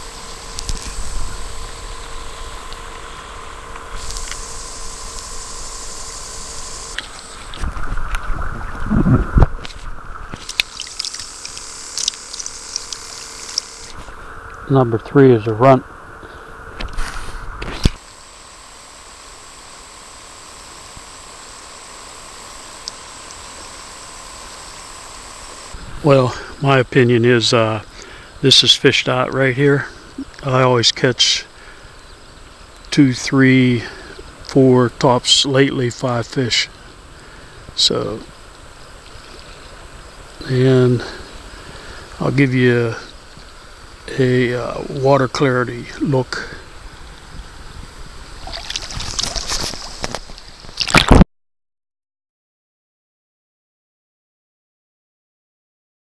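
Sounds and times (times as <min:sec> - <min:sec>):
wind buffeting microphone: 0:07.4 - 0:10.3
thin steady high tone: 0:10.3 - 0:16.6
river water over rocks: 0:10.4 - 0:13.8, 0:48.4 - 0:50.9.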